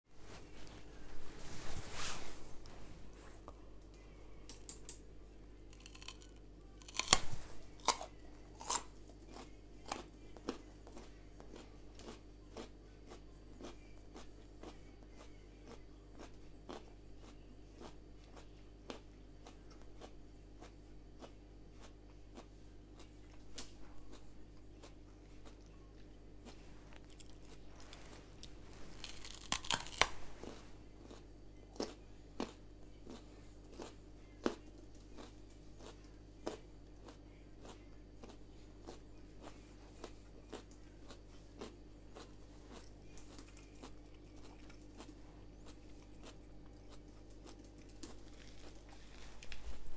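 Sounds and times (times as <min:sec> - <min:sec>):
steady low hum: 0:00.1 - 0:49.9
carrot crunching: 0:05.6 - 0:14.8, 0:15.7 - 0:49.9.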